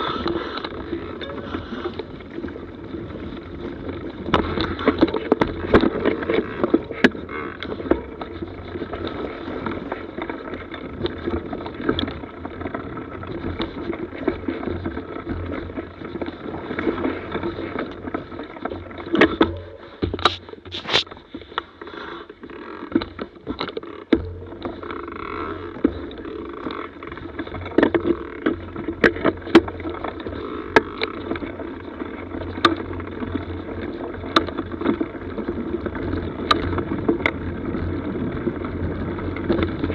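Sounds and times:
bike knocking over bumps: 0.0s - 21.1s, 22.6s - 33.2s
bike rolling rumble and rattle: 0.0s - 39.9s.

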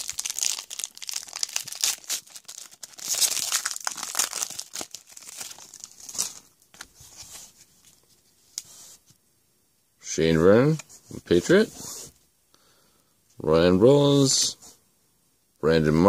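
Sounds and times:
foil wrapper tearing and crinkling: 0.0s - 6.5s.

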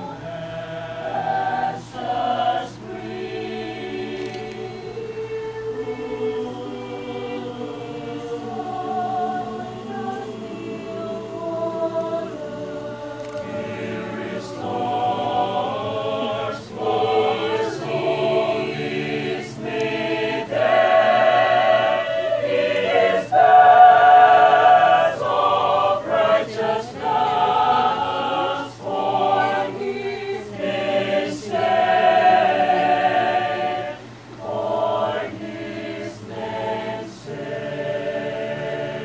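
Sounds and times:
mixed choir singing a cappella: 0.0s - 39.0s.

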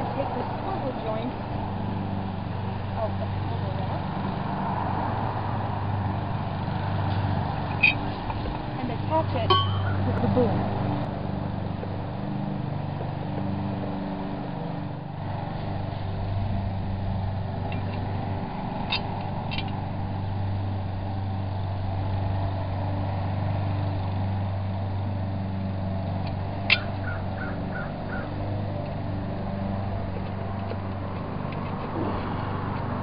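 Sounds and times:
low motor hum: 0.0s - 33.0s
sharp metal clinks: 9.4s - 10.2s.

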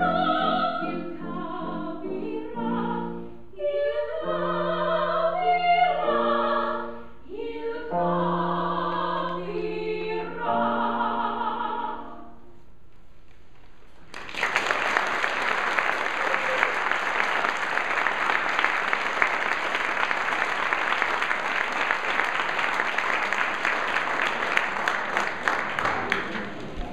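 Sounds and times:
audience applauding: 14.0s - 26.9s.

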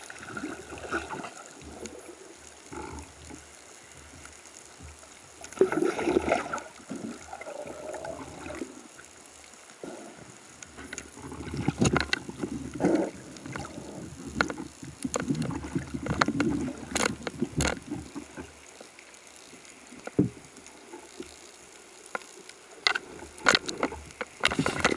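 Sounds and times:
water rushing and bubbling: 0.0s - 3.9s, 4.8s - 18.8s
clicks and knocks from gear: 11.7s - 12.5s, 14.3s - 18.9s, 22.0s - 24.9s.

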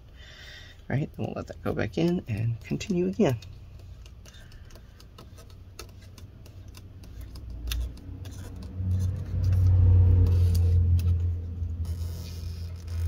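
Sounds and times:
low drone of stretched strip: 7.7s - 13.0s.

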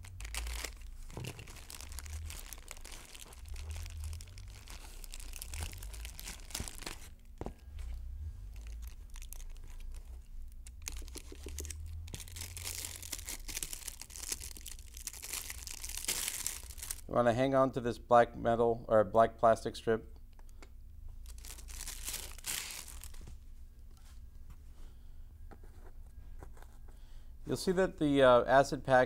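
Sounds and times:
plastic packaging crinkling: 0.0s - 7.8s, 8.4s - 17.1s, 21.2s - 23.3s.

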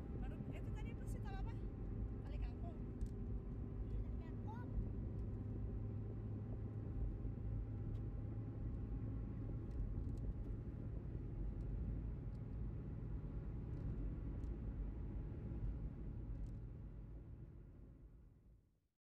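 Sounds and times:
vehicle engine and road drone: 0.0s - 18.2s.

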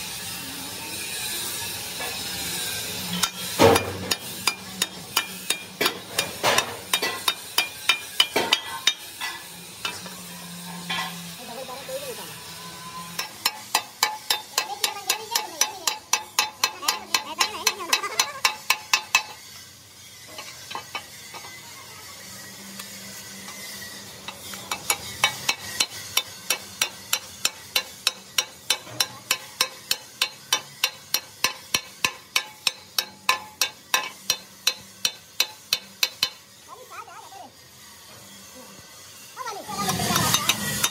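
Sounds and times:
hammer tapping on steel: 3.2s - 9.0s, 13.2s - 19.4s, 24.3s - 36.4s.

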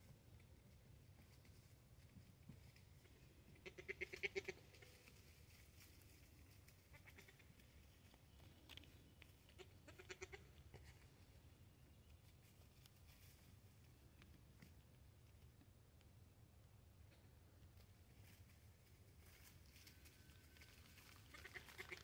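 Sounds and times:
goat kids bleating: 3.6s - 5.0s, 6.9s - 7.5s, 9.4s - 11.1s, 21.3s - 22.0s.

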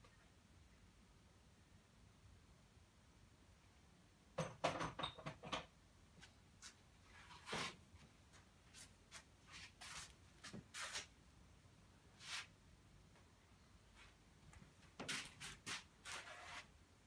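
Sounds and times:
handling knocks and scrapes: 6.6s - 11.1s
rubbing strokes on canvas: 8.7s - 11.1s, 12.2s - 12.5s, 15.0s - 16.7s.

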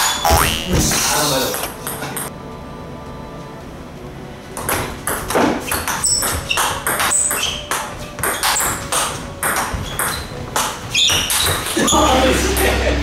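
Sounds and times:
ball bouncing on table: 0.3s - 0.9s
table tennis ball on bats: 0.3s - 1.0s, 4.6s - 11.7s.

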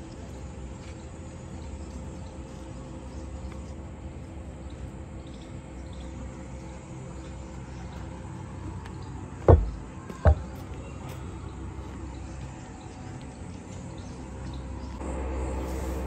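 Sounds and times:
low background noise: 0.0s - 16.0s
sharp knocks: 9.5s - 10.5s.

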